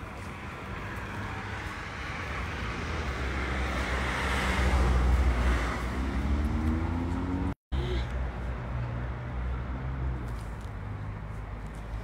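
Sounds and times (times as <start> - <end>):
vehicle passing: 0.2 - 7.6.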